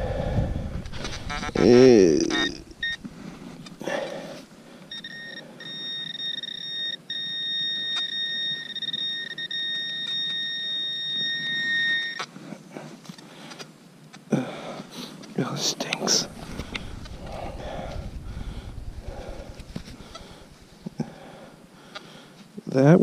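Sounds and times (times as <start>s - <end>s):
high-pitched pinpointer beep: 2.3s - 3.0s, 4.9s - 12.3s.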